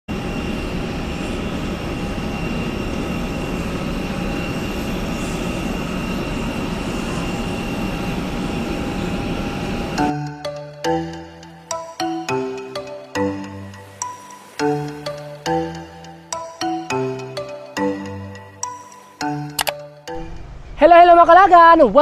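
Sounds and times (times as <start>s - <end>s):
faint whining tones: 0.1s - 10.1s
airliner engines roaring: 0.1s - 22.0s
music with bell-like mallet notes: 10.0s - 20.4s.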